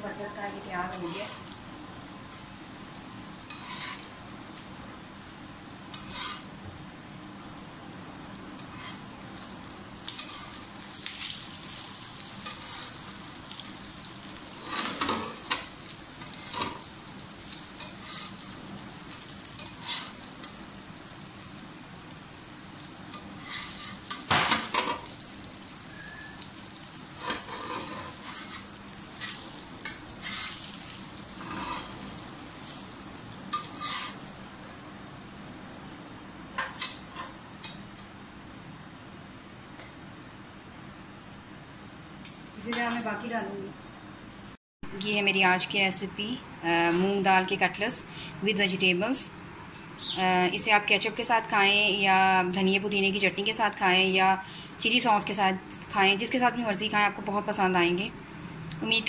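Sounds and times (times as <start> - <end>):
food sizzling in oil: 0.0 - 38.0
metal tongs scraping on pan: 3.5 - 4.2, 5.9 - 6.4, 8.6 - 9.0, 10.1 - 10.6, 12.4 - 13.0, 14.5 - 16.8, 17.6 - 18.5, 19.2 - 20.6, 23.1 - 25.0, 27.2 - 30.7, 31.3 - 32.8, 33.5 - 34.2, 36.6 - 37.8.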